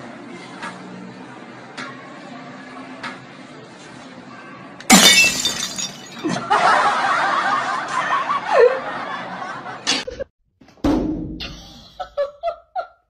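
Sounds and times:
people laughing: 6.1 - 10.3, 11.8 - 13.0.

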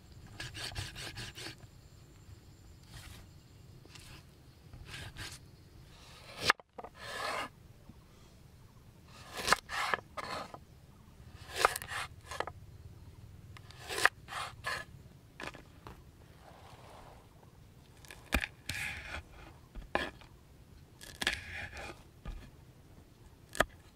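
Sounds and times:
knife cutting on chopping board: 9.2 - 10.6, 11.4 - 12.5, 13.8 - 14.8.

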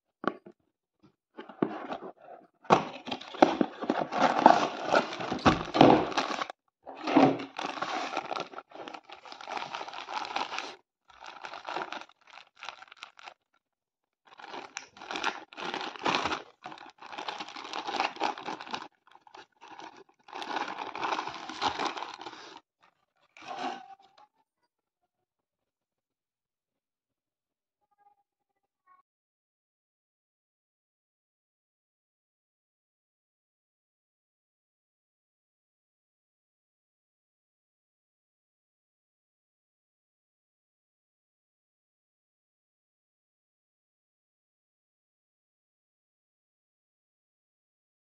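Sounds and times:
plastic bag crinkling: 3.0 - 13.4, 14.3 - 22.6, 23.4 - 23.8.

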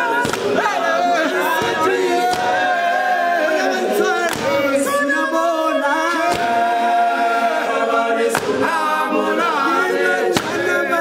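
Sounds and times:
men singing a cappella: 0.0 - 11.0
sharp claps: 0.2 - 0.6, 4.3 - 4.6, 8.3 - 8.6.

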